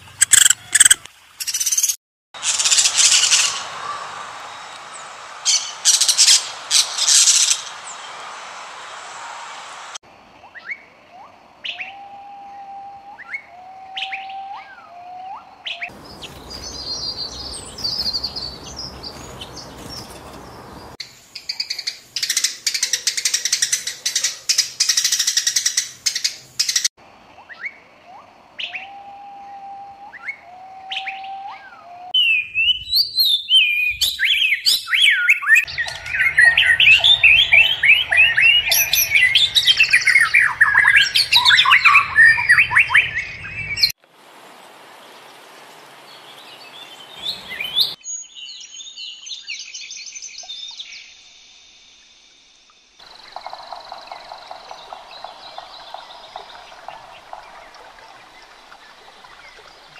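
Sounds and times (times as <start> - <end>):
songbirds chirping and singing: 10.4 - 26.8, 27.4 - 44.0, 46.1 - 51.3, 53.0 - 59.9.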